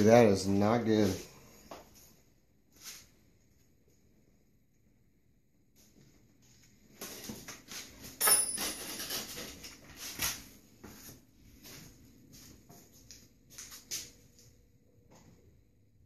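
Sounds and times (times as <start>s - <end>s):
metal clank with ringing: 8.2s - 9.2s
metal tools clinking and scraping: 8.2s - 9.8s.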